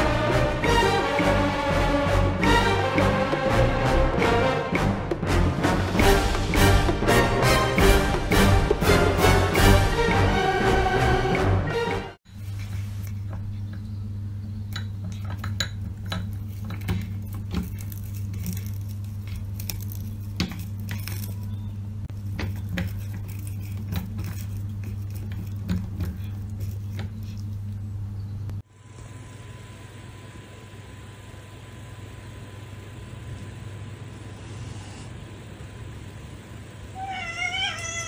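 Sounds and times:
cat chewing on toothbrushes: 0:22.6 - 0:27.8.

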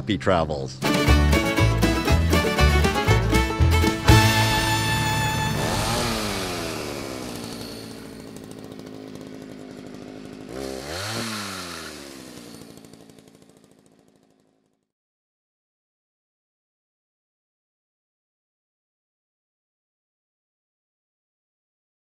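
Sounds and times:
chainsaw engine revving down: 0:00.8 - 0:14.8.

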